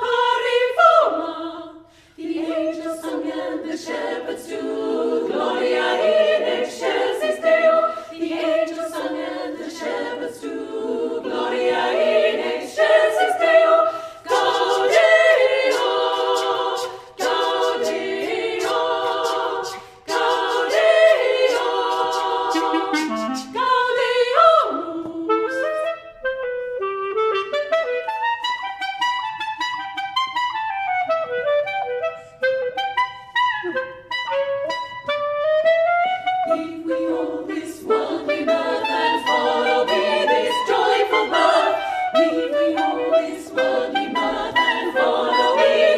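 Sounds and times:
female choir singing: 0:00.0 - 0:25.9, 0:36.3 - 0:45.9.

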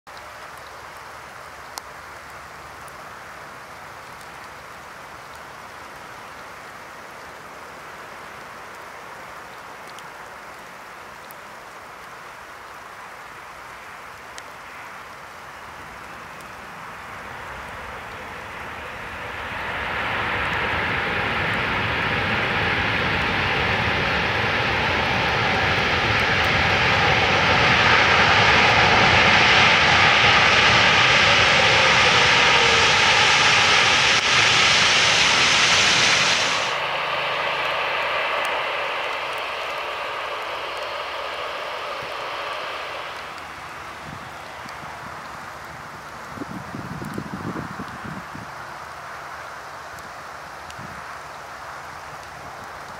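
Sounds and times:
loud jet roar with whining: 0:16.0 - 0:49.4
jet engine hiss: 0:16.2 - 0:45.2.

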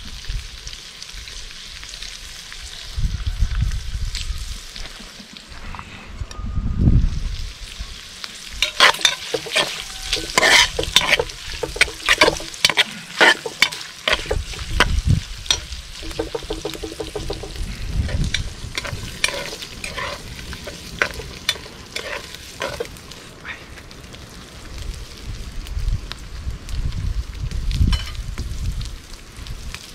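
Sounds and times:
pork fat sizzling and popping: 0:00.0 - 0:05.6, 0:07.1 - 0:29.9
metal spoon scraping pot: 0:08.6 - 0:14.9, 0:15.5 - 0:22.9.

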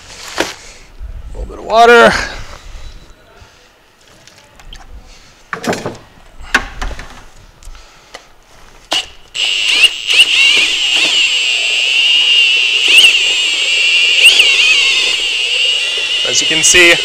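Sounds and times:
drill mixer whining: 0:09.0 - 0:17.0.

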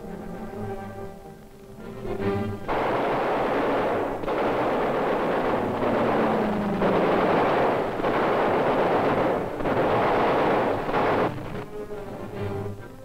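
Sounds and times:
machine guns firing: 0:02.7 - 0:12.7.

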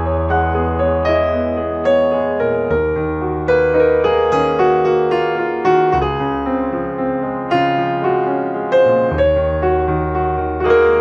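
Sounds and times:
slow gentle piano music: 0:00.0 - 0:11.0.

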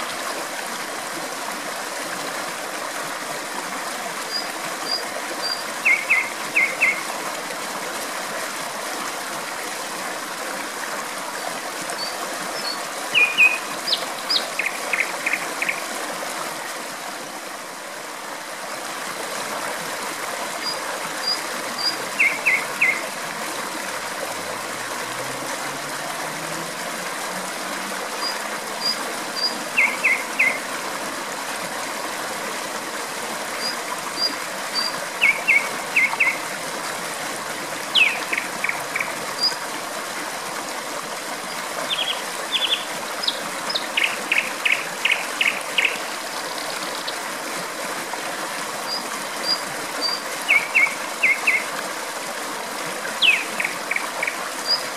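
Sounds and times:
flowing water: 0:00.0 - 0:54.9
nightingale singing: 0:04.4 - 0:07.0, 0:12.0 - 0:15.8, 0:21.2 - 0:23.0, 0:28.2 - 0:30.6, 0:33.6 - 0:36.4, 0:37.9 - 0:39.1, 0:41.9 - 0:46.0, 0:49.5 - 0:51.6, 0:53.2 - 0:54.8.

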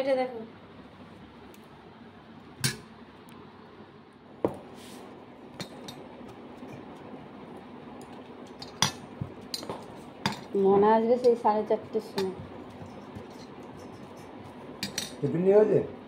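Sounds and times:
steel plates and bowls clinking: 0:14.8 - 0:15.2.

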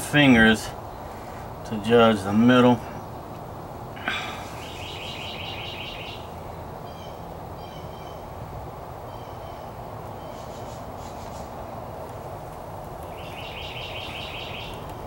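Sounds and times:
low background noise: 0:00.0 - 0:15.0
small birds chirping: 0:00.0 - 0:15.0.

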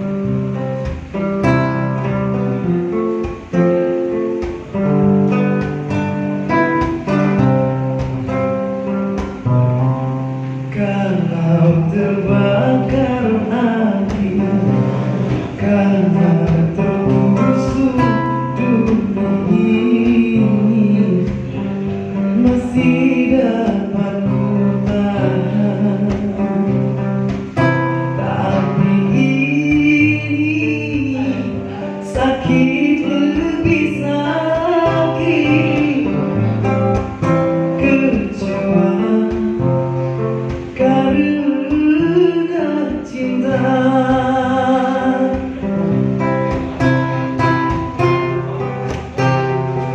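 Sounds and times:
acoustic guitar: 0:00.0 - 0:49.9
man singing: 0:10.6 - 0:27.0, 0:27.6 - 0:49.4.

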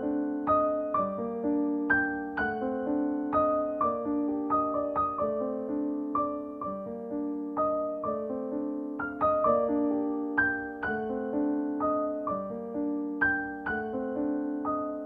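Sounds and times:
piano music: 0:00.0 - 0:15.0.

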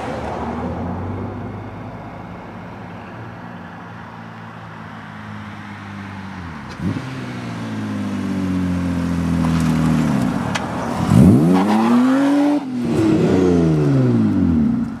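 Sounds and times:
cars accelerating past: 0:04.9 - 0:15.0.

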